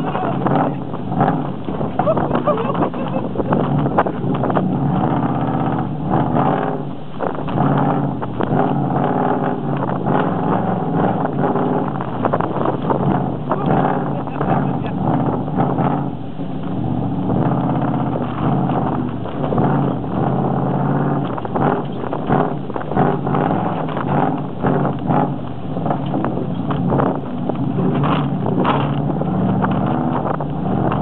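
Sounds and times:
engine running: 0.0 - 31.0
knocks and rattles: 20.9 - 31.0.

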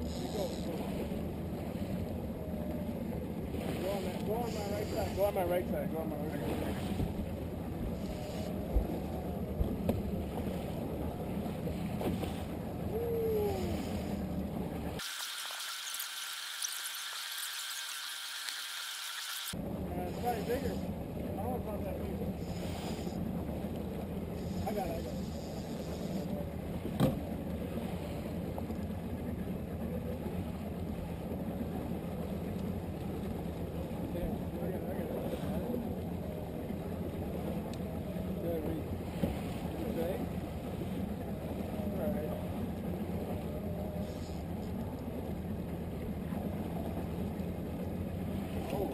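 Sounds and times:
trolling motor running: 0.0 - 12.9
outboard motor droning: 0.0 - 48.9
water noise: 0.0 - 48.9
wind: 0.0 - 48.9.

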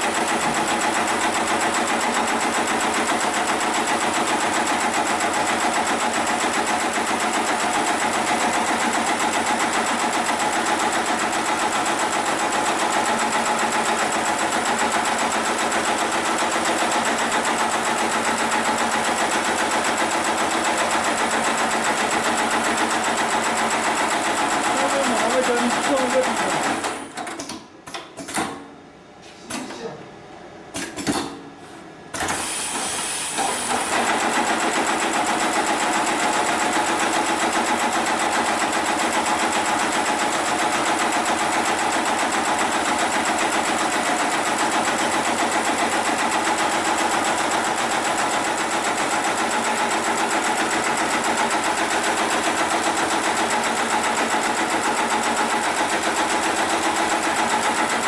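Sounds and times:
sewing machine stitching: 0.0 - 27.6, 32.2 - 58.0.

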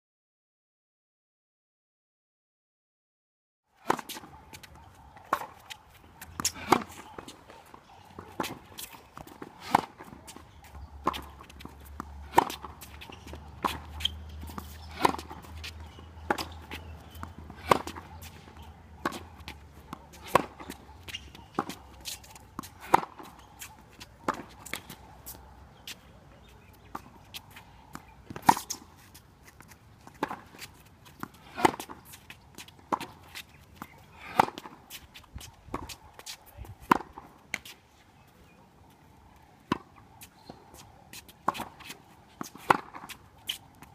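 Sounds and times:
tennis ball off racket strings: 3.8 - 26.0, 26.6 - 37.8, 39.6 - 43.9
footsteps on hard court: 3.9 - 37.8.

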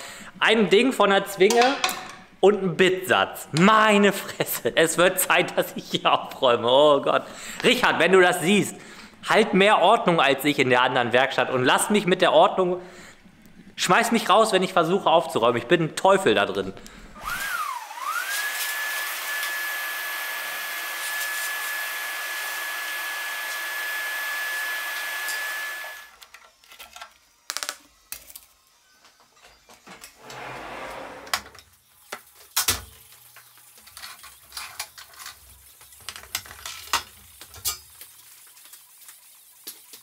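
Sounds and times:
tools and parts clattering: 1.5 - 2.3, 33.8 - 37.9
small electric motor whining: 17.2 - 26.2.

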